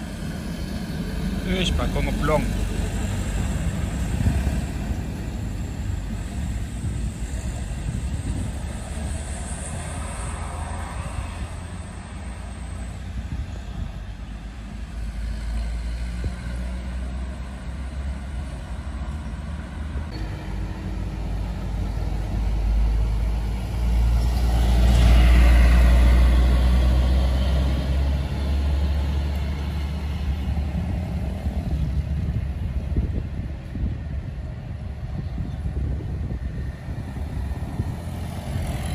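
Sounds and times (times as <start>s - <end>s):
vehicles passing with tyre noise: 0.0s - 38.9s.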